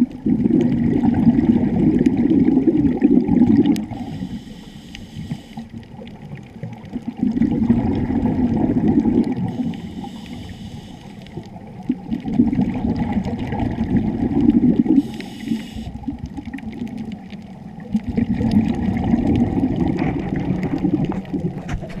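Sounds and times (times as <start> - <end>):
gurgling exhaled bubbles underwater: 0.0 - 22.0
regulator hiss: 3.9 - 5.7, 9.4 - 11.4, 14.9 - 16.1.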